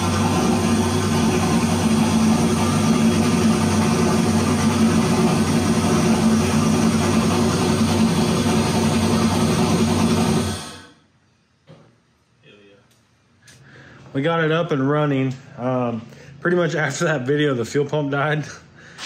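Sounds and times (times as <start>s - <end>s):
engine idling: 0.0s - 10.9s.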